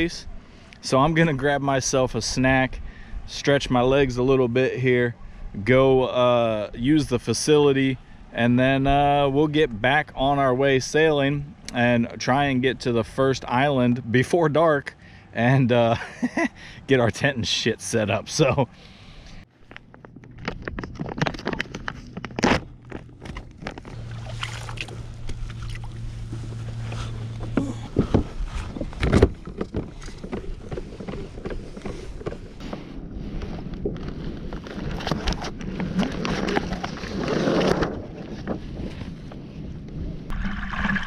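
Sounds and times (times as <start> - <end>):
steady low hum: 0.0 - 36.6
water splashing against hull: 21.9 - 33.0, 40.3 - 41.0
sharp knocks and clatters: 28.0 - 32.6.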